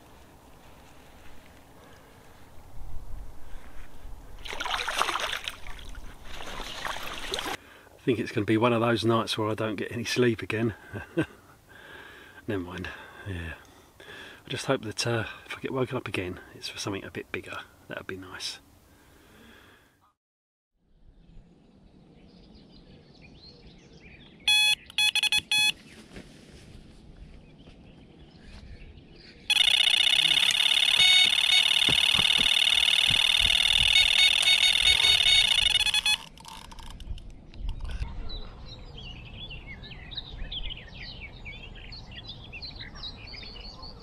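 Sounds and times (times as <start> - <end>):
electronic bite alarm bleeps: 24.5 - 25.8, 29.5 - 36.3
rapid-fire alarm tone: 24.5 - 25.8, 29.5 - 36.3.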